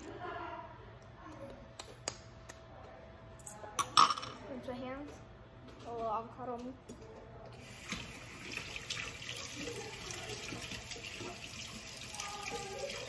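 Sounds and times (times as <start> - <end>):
tap running into a sink: 7.6 - 12.6.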